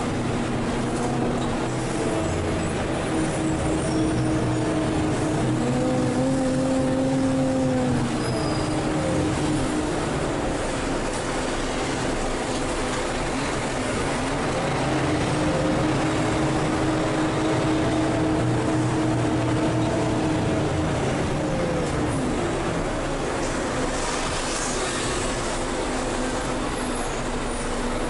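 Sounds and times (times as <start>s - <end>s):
drivetrain whine: 0.0s - 24.0s
bus engine running: 0.0s - 28.0s
road noise: 0.0s - 28.0s.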